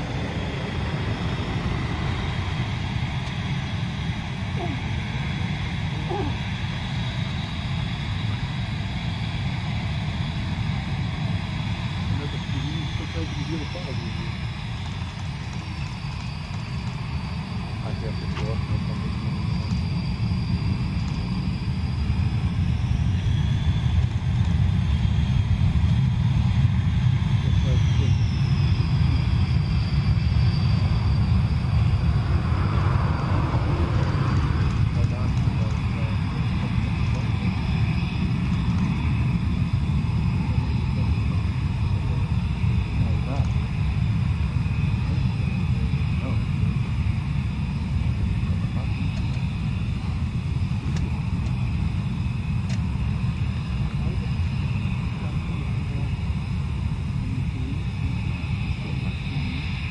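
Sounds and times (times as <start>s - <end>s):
jet rushing past: 0.0s - 6.5s, 28.4s - 48.5s
jet engines rumbling and whining: 0.0s - 59.9s.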